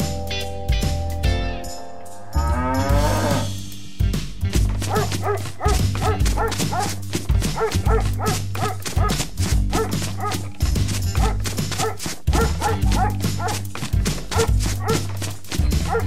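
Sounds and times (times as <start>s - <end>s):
background music with bass line: 0.0s - 16.0s
dog barking: 4.8s - 10.5s, 11.1s - 13.7s, 14.3s - 15.2s, 15.8s - 16.0s.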